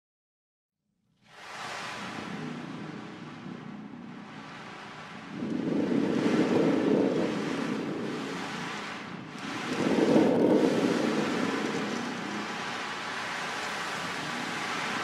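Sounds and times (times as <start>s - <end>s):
surging surf: 1.2s - 15.0s
storm rumble: 1.3s - 15.0s.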